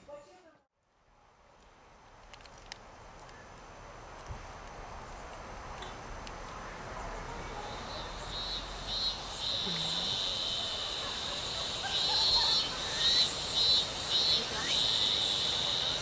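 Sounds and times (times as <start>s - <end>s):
insect chirping trill: 7.6s - 16.0s.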